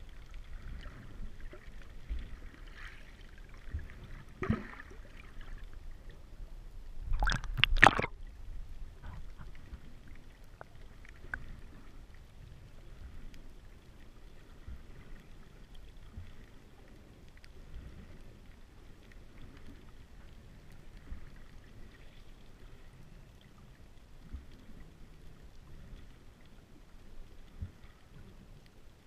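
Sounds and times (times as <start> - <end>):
faint underwater clicks: 0.0 - 29.0
underwater rumble of moving water: 0.0 - 29.0.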